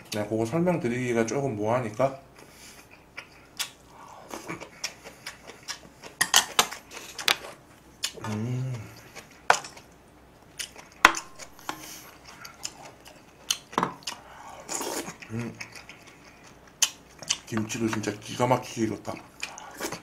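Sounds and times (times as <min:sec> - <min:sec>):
person humming: 0:08.2 - 0:09.1, 0:15.3 - 0:15.6.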